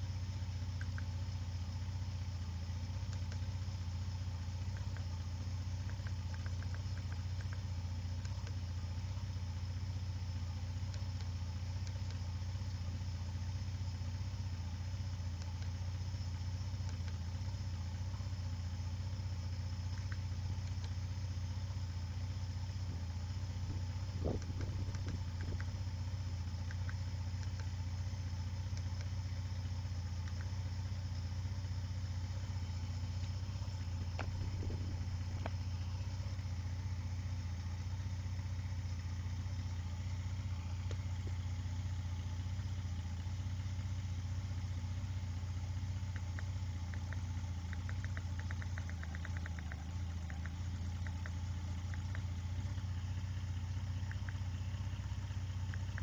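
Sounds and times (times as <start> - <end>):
car engine idling: 0.0 - 56.0
light clicks: 0.7 - 1.1, 3.0 - 3.7, 4.6 - 8.6, 16.8 - 17.6, 19.8 - 21.0, 22.9 - 29.2, 30.1 - 31.3, 32.4 - 36.5, 46.0 - 52.8, 54.0 - 56.0.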